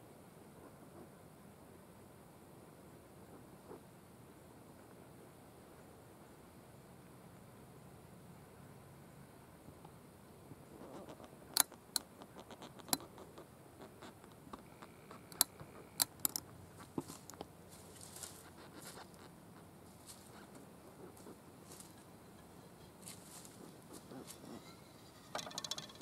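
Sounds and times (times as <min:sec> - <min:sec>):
faint steady background noise: 0:00.0 - 0:26.0
sharp clicks and snaps: 0:11.0 - 0:16.5
soft rustling: 0:16.6 - 0:25.3.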